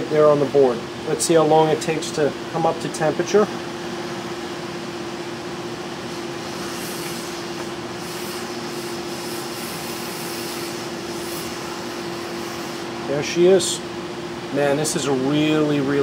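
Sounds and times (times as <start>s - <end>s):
steady hum: 0.0s - 16.0s
hot air blower hissing: 5.2s - 16.0s.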